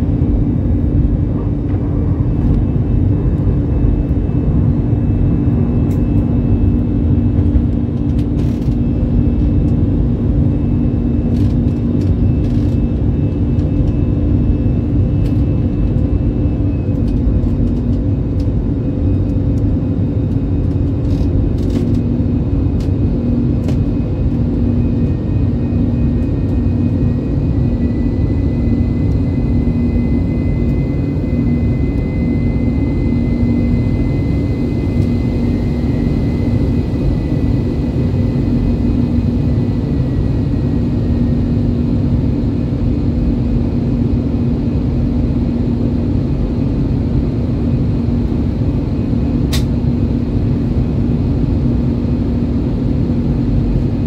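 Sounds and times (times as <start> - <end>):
jet engine roar in cabin: 0.0 - 54.0
faint high whine: 23.2 - 46.7.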